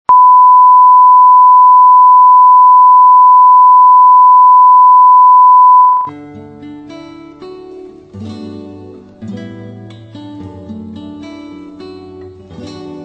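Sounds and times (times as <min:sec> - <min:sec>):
loud test tone: 0:00.1 - 0:06.1
soft plucked-string music: 0:06.1 - 0:13.0.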